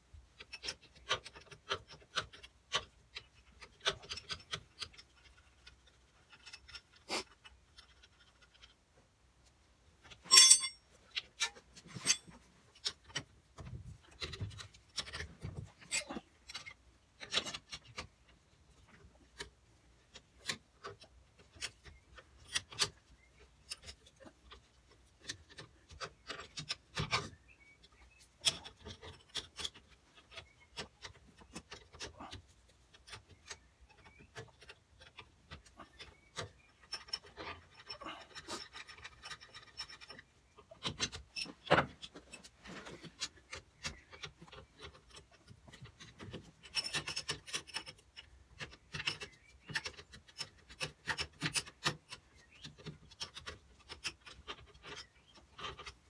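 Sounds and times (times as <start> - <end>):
spanners clinking on metal: 10.2 - 10.9, 11.9 - 12.4
ringing metal clink: 10.3 - 10.8.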